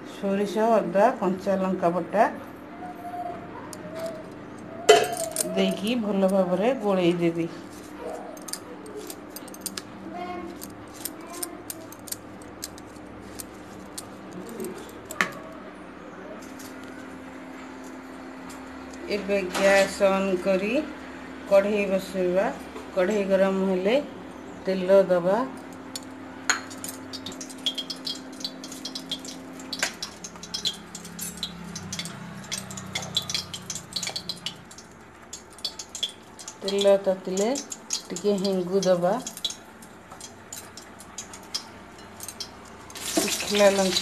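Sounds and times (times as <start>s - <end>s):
spoon clicking against bowl: 10.6s - 15.2s, 25.9s - 43.5s
oil crackling and popping: 25.9s - 44.0s.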